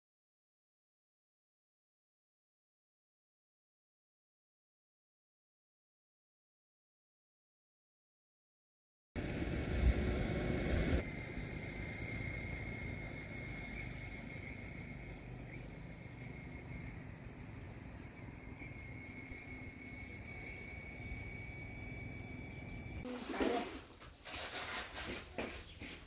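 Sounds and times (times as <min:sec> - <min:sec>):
low rumble: 0:09.2 - 0:23.1
thin steady high tone: 0:09.2 - 0:23.8.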